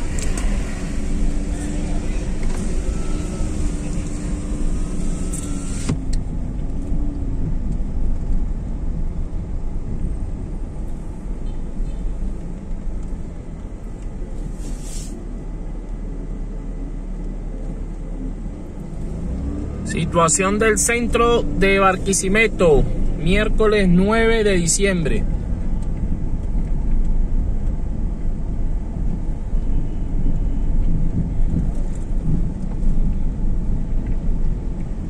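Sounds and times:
car engine running: 0.0s - 14.6s, 18.4s - 35.0s.

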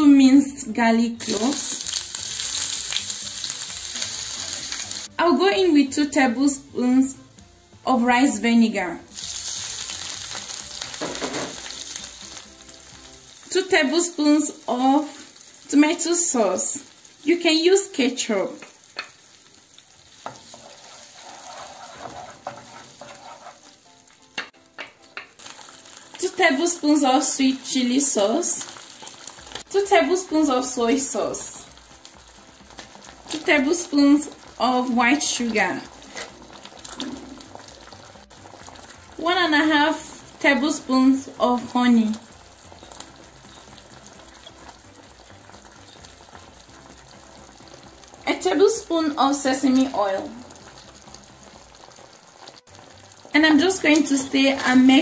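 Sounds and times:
sauce sizzling in oil: 0.0s - 55.0s
spatula scraping a pan: 20.2s - 23.8s
spatula knocking on pan: 24.3s - 25.4s.

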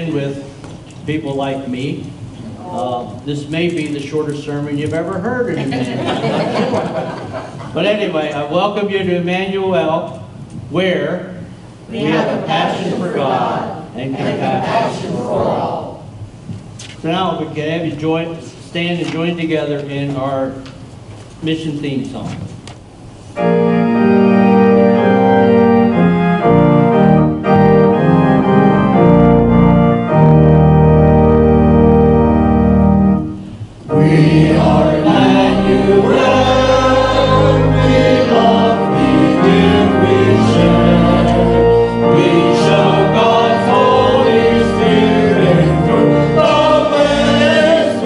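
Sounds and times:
organ playing hymn chords: 0.0s - 0.6s, 2.8s - 10.2s, 23.2s - 48.0s
group of people singing: 11.9s - 16.0s, 33.9s - 48.0s.

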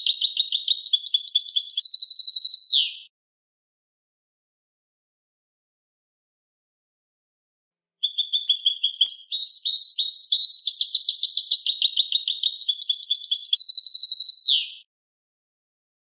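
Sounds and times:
finch twittering song: 0.0s - 3.1s, 8.0s - 14.9s.

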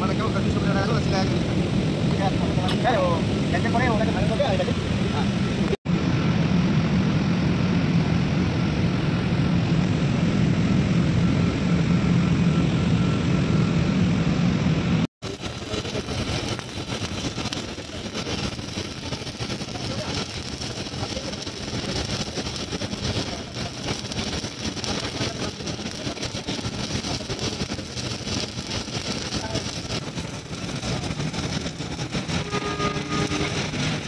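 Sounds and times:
welding arc crackling: 15.2s - 34.0s.

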